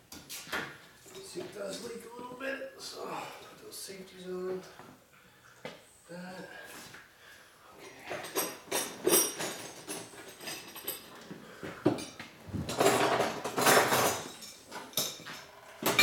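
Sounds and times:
metal tools clinking: 8.1 - 11.2, 12.0 - 16.0.

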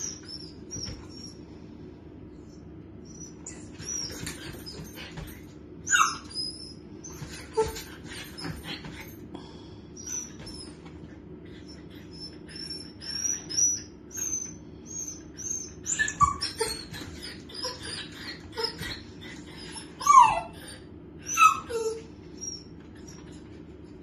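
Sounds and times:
dog whining squeaks: 0.0 - 1.4, 3.0 - 9.1, 10.0 - 10.9, 11.5 - 23.4
dog yelping: 3.1 - 8.7, 12.0 - 23.4.

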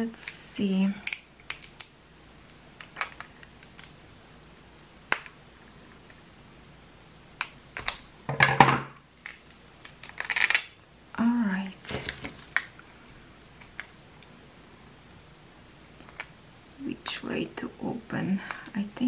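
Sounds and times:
plastic bag and tape rustling: 11.7 - 12.7.

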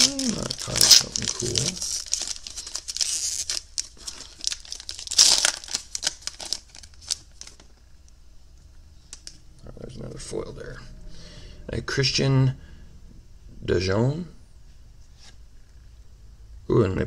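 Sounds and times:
foil wrapper tearing and crinkling: 0.0 - 7.7.

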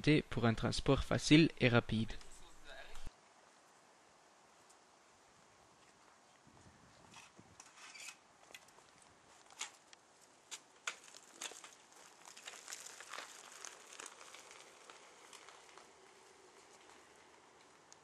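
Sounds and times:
tyres crunching on gravel: 8.6 - 18.0.

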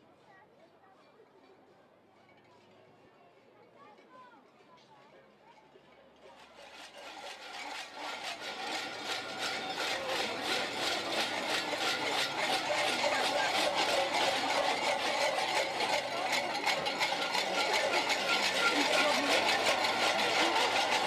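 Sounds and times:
costume bells jangling: 6.7 - 21.0.

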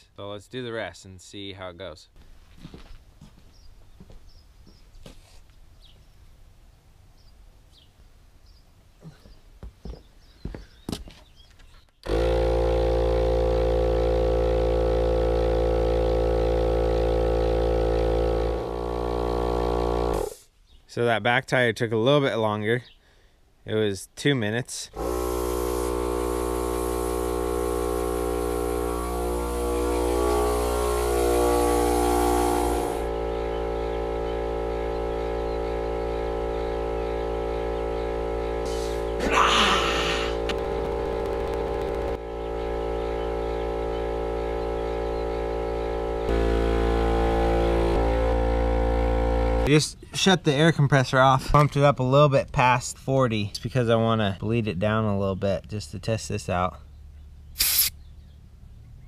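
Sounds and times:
air compressor running: 12.0 - 20.5, 24.9 - 49.7, 57.6 - 57.9
air hissing: 18.2 - 20.5, 25.0 - 33.9, 38.0 - 42.1, 57.6 - 58.0.

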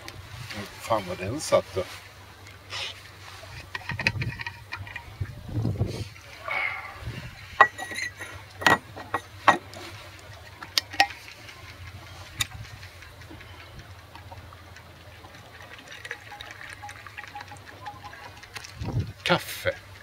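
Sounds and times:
coffee pouring into metal cup: 7.5 - 19.2
flask clicks and knocks: 7.6 - 9.8.

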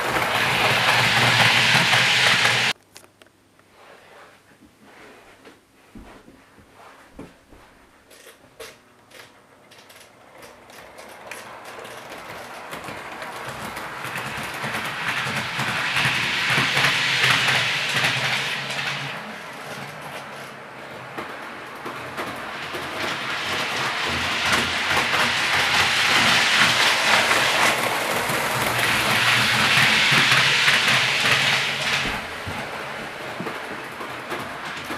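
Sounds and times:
model train rattling along track: 0.0 - 2.8, 9.1 - 34.9.

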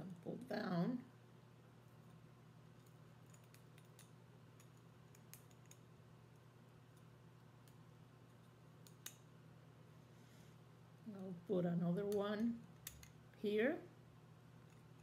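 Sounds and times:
low steady hum: 0.0 - 15.0
wire clicking and ticking: 2.8 - 9.3, 11.9 - 13.2.

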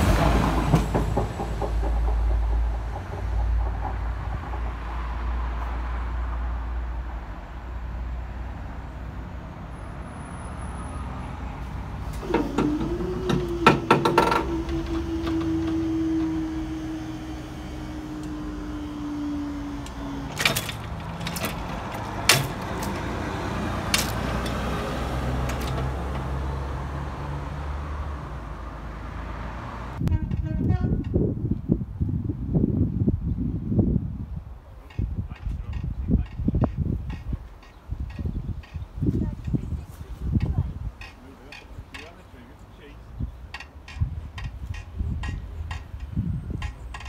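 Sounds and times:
motor hum falling in pitch: 12.2 - 27.4
barrier booms clacking: 19.8 - 23.2.

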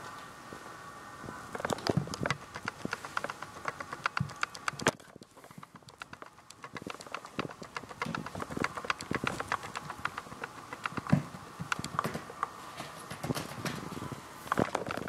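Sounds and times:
kitten paws scampering on wood: 1.5 - 15.0.

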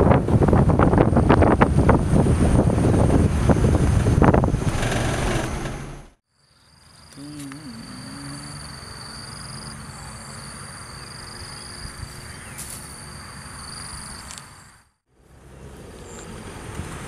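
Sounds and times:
wind buffeting microphone: 0.0 - 6.2
insect chirring: 6.3 - 14.9.

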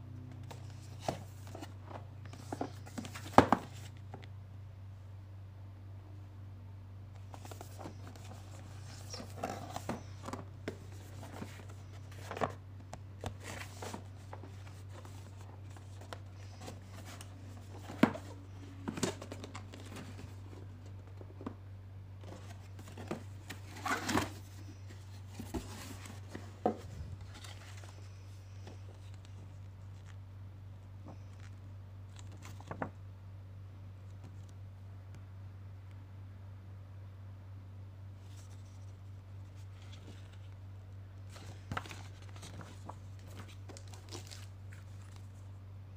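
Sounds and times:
steady low hum: 0.0 - 45.9
hands handling cardboard box: 0.3 - 4.2, 7.2 - 21.6, 22.2 - 30.1, 41.3 - 45.4
paper rustling: 7.2 - 12.6, 13.2 - 21.5, 22.2 - 30.2, 41.3 - 45.4.

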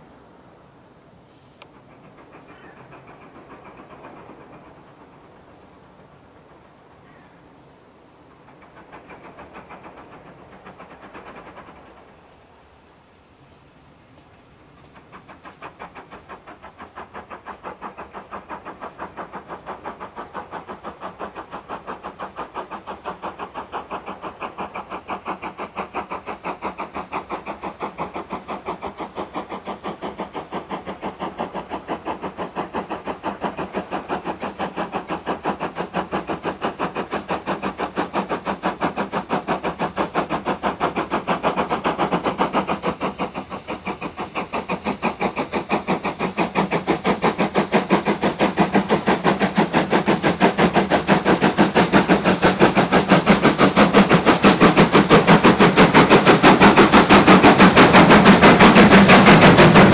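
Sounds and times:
steam locomotive exhaust beats: 0.0 - 59.9.

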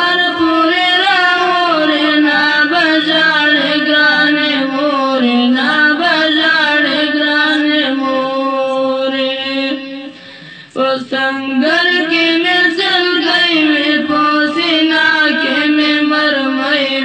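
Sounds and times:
boy singing a chant: 0.0 - 17.0.

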